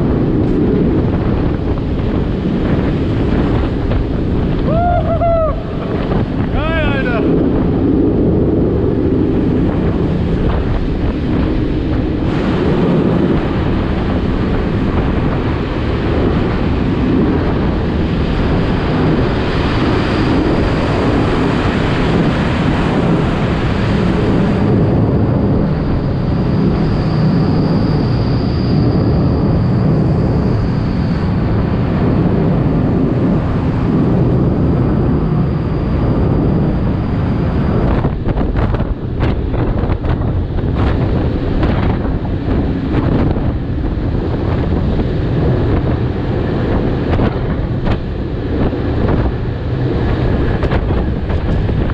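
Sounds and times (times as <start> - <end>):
vehicle rumble: 0.0 - 16.7
wind buffeting microphone: 0.0 - 51.9.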